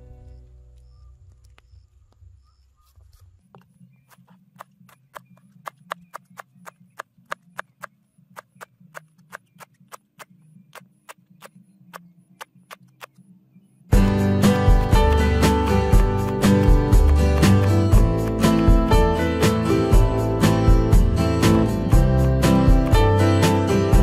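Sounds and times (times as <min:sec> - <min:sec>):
knife chopping on cutting board: 0:16.0 - 0:18.8.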